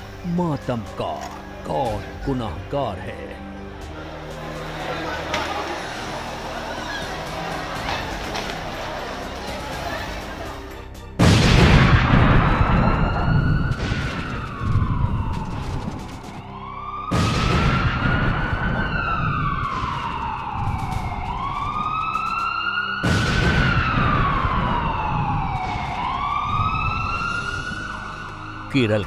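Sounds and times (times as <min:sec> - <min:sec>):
siren wailing: 0:11.8 - 0:29.0.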